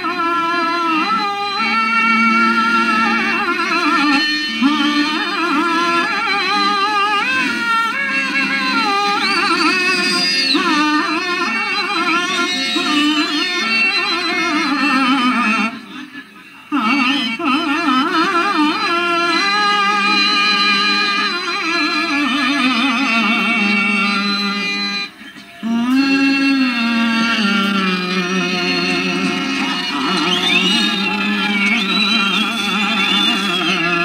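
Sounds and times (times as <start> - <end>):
instrumental accompaniment: 0.0 - 34.0
man singing with vibrato: 25.6 - 34.0.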